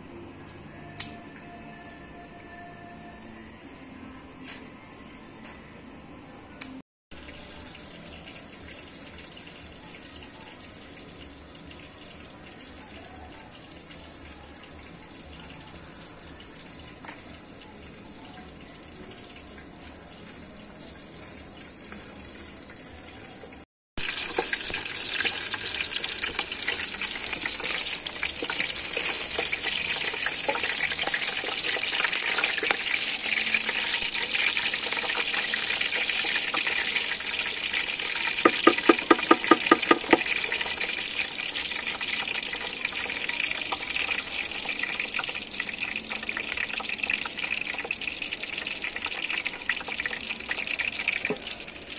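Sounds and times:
water running: 24.0 - 51.4.

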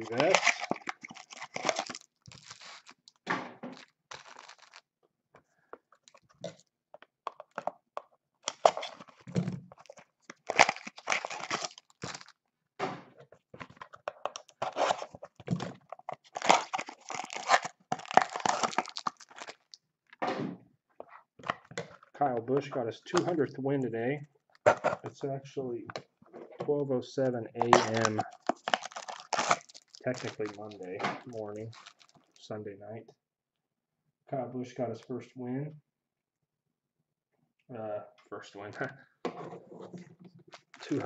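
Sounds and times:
foil wrappers tearing and crinkling: 0.0 - 4.9, 8.5 - 12.3, 14.0 - 19.8, 27.6 - 32.4, 40.5 - 41.0.

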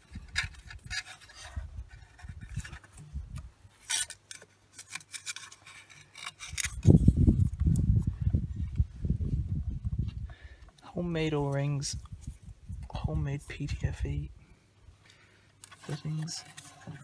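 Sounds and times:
tape rubbing and crinkling on metal: 0.0 - 8.8, 15.6 - 17.0.

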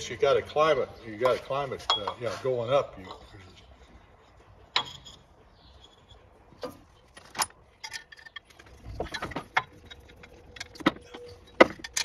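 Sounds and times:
metal hardware clinking and rattling: 4.7 - 12.0.

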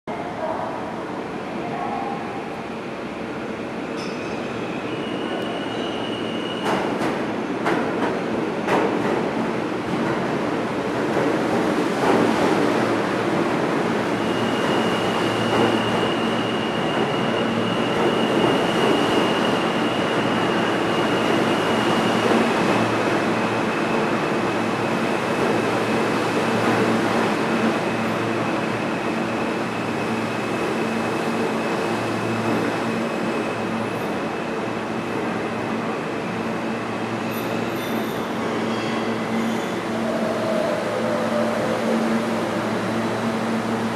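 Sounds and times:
subway train rumbling and rattling: 0.1 - 43.9
high wheel squeal: 4.0 - 6.7.

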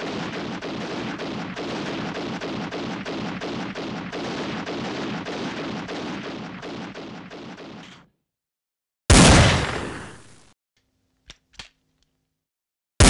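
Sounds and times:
rapid pistol gunfire: 0.0 - 7.8.

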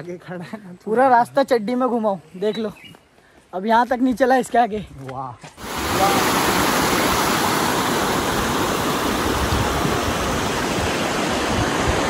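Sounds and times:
stream rushing over rapids: 5.6 - 12.0.

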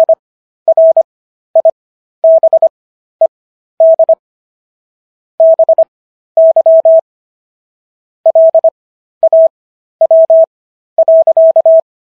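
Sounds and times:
morse code beeps: 0.0 - 1.0, 1.6 - 2.7, 3.8 - 4.2, 5.4 - 7.0, 8.3 - 11.9.

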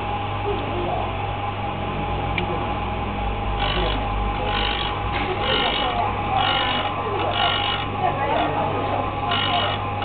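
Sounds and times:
sharpening machine humming: 3.5 - 10.0.

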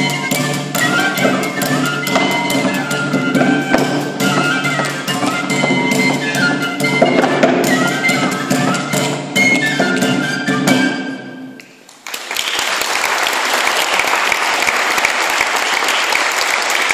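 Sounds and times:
audience applause: 11.8 - 16.9.

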